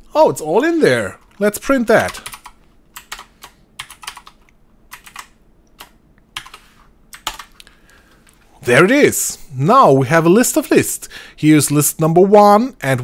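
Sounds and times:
computer keyboard typing: 1.3s - 7.6s.

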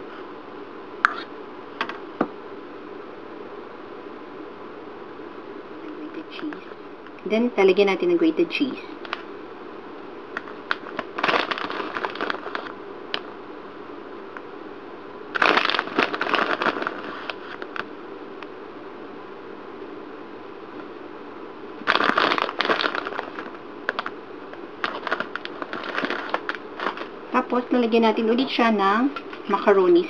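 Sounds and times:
grated cheese crackling and rustling: 24.8s - 27.2s.

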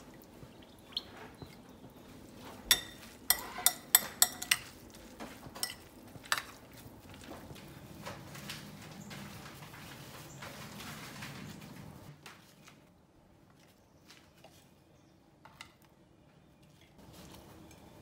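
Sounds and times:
utensil clinking against glass bowl: 2.6s - 4.8s, 5.6s - 6.6s.

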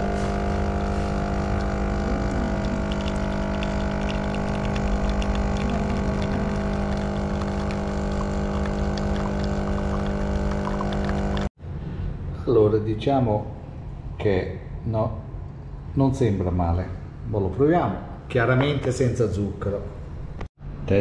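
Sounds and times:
espresso machine pump humming: 0.0s - 11.5s
espresso streaming into cup: 0.0s - 11.5s.

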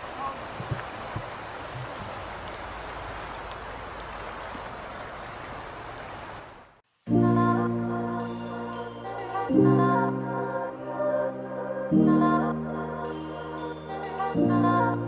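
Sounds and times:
river water rushing: 0.0s - 6.8s
background music: 7.1s - 15.0s.

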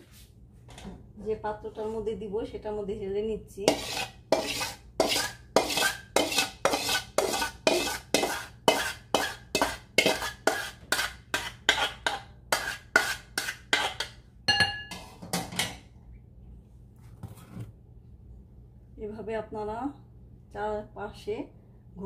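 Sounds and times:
metal spoon scraping pan: 3.6s - 14.2s
ringing metal clink: 14.5s - 15.0s.

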